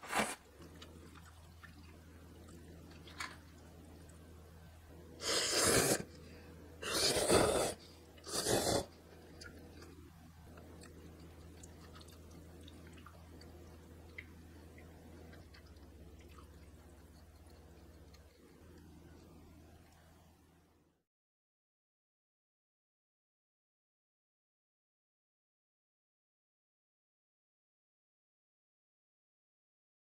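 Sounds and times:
low steady hum: 0.0s - 21.0s
person slurping noodles: 5.2s - 6.2s, 6.8s - 9.0s.

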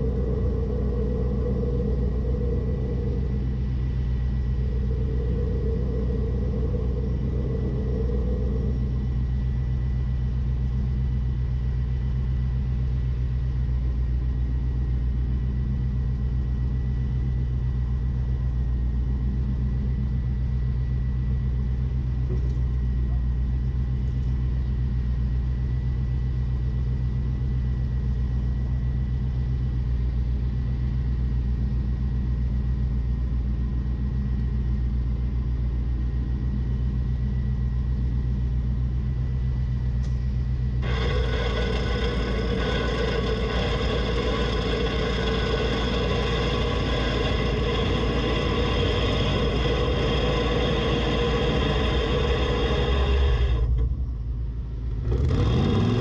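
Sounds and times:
electric winch whining: 0.0s - 10.1s, 40.8s - 54.0s
vehicle engine idling: 0.0s - 56.0s.

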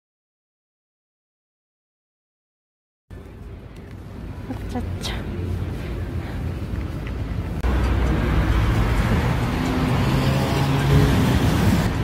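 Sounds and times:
road traffic rumble: 3.1s - 12.0s
vehicle engine hum: 3.1s - 12.0s.

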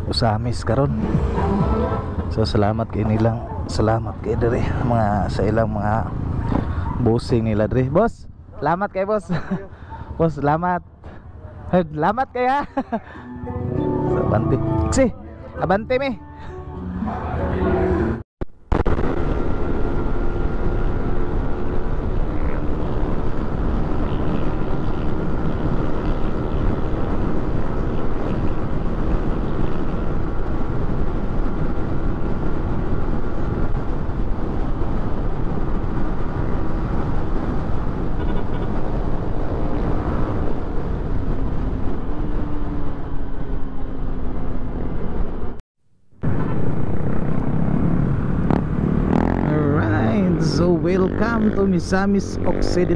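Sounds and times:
wind rush on microphone: 18.8s - 45.6s.

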